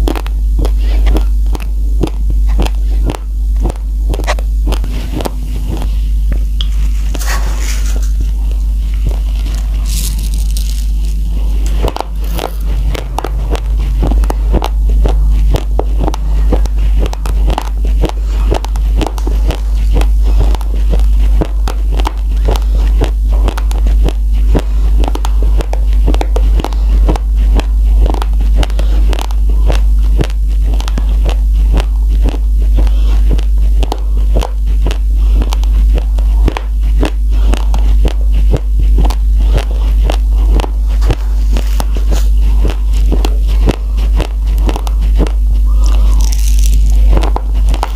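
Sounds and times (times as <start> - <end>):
crunching of chewed rice: 0.0 - 47.9
low steady hum: 0.0 - 47.9.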